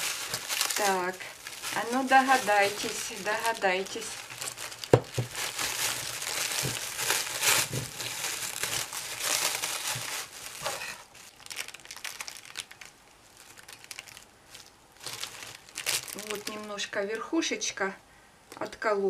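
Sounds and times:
plastic film crinkling: 0.0 - 17.0.

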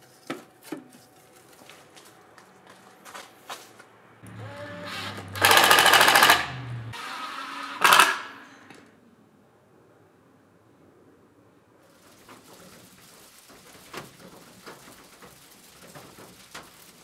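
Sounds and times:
power drill hammering into wood: 4.3 - 7.2, 7.8 - 8.3.

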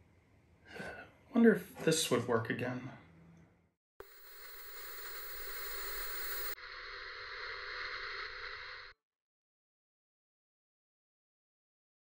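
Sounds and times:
television static hiss: 4.0 - 8.9.

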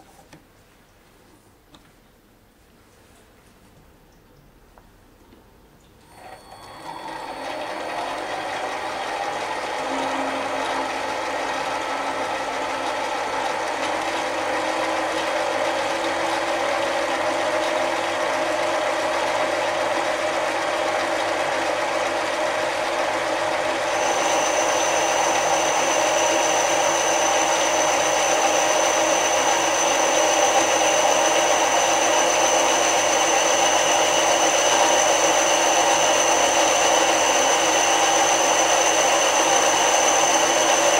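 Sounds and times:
high steady whine: 6.1 - 13.6, 23.8 - 40.9
lathe running with gear whine: 6.1 - 40.9.

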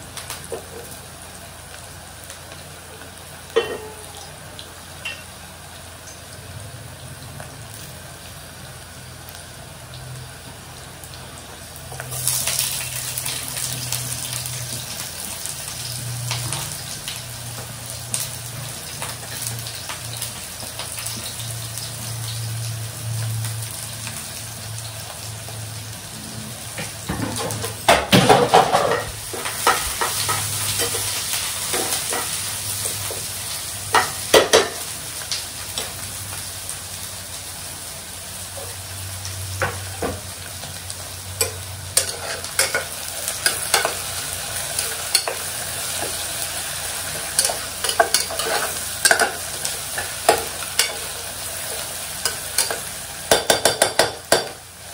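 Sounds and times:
food sizzling in hot oil: 0.0 - 54.9
spoon scraping a pot: 42.0 - 42.9, 47.4 - 49.3.

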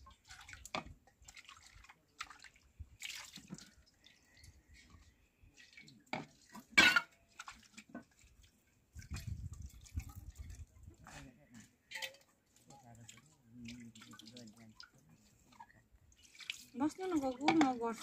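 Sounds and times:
water splashing and dripping: 0.0 - 18.0
metal pot and colander clattering: 6.1 - 7.4, 11.8 - 12.3, 16.9 - 18.0.

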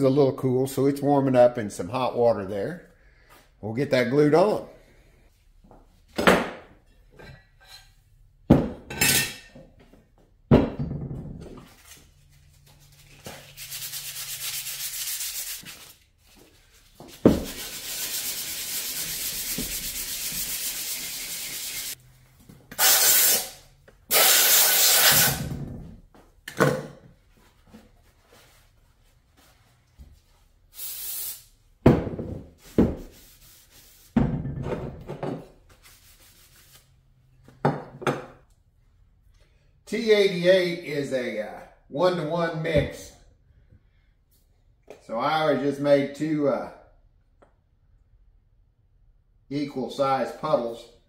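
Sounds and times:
sandpaper rubbing on metal: 12.8 - 16.0, 17.4 - 22.0, 22.8 - 25.4.

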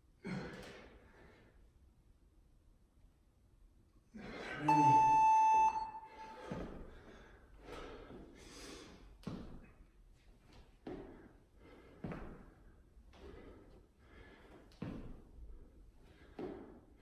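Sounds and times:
long electronic beep: 4.6 - 6.4.

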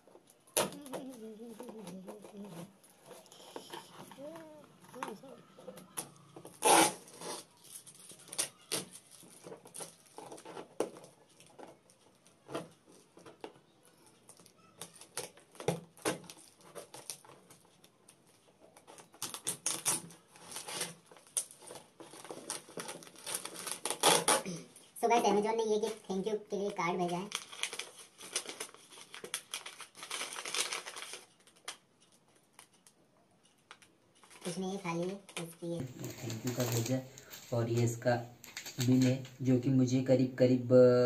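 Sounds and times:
knife slitting packing tape: 6.5 - 9.0, 19.0 - 24.5.

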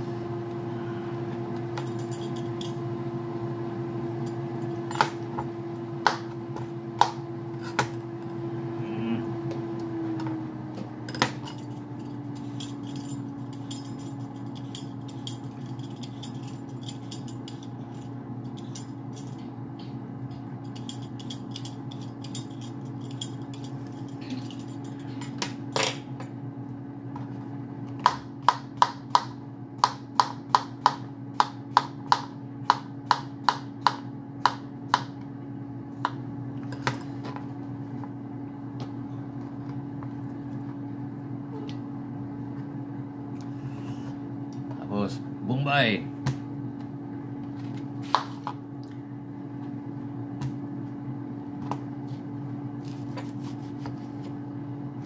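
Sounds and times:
appliance hum: 0.0 - 55.0
knife chopping cucumber on board: 28.0 - 35.1.

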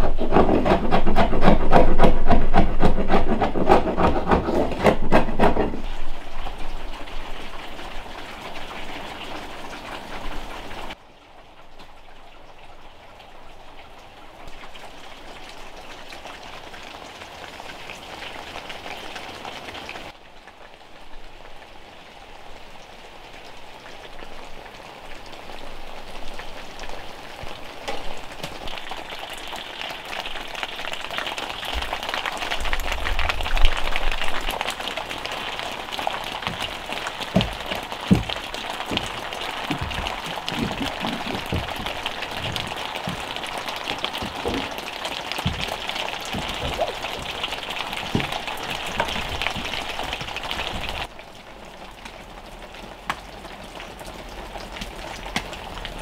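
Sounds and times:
rain pattering: 0.0 - 56.0
dull thumps: 36.4 - 51.1.

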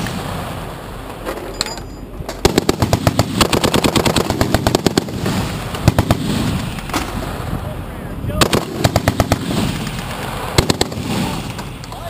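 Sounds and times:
heavy machine gun firing: 2.4 - 7.0, 8.4 - 11.7.

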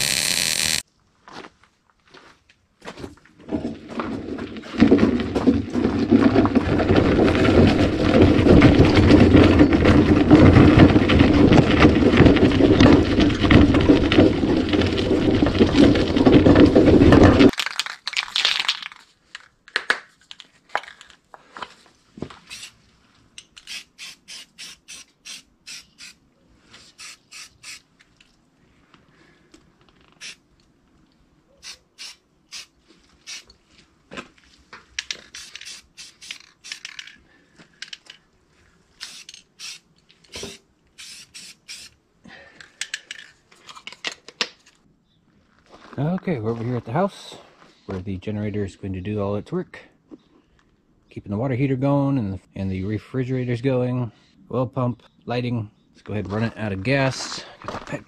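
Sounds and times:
generator wheels rattling on dirt: 3.1 - 17.5.

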